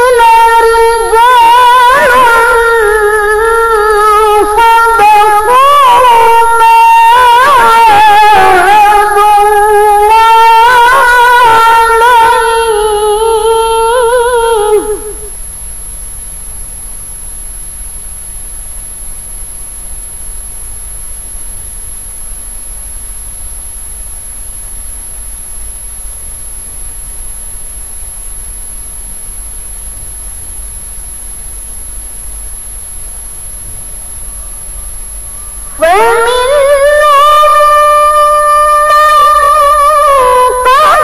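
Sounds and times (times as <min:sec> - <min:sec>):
woman reciting melodically: 0:00.0 - 0:15.4, 0:35.3 - 0:41.0
steady low hum: 0:00.0 - 0:41.0.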